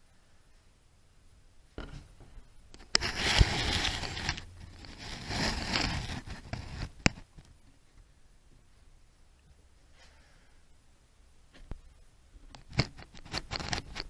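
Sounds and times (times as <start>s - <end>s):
camera handling rubbing and scraping: 2.8s - 7.3s, 12.6s - 14.0s.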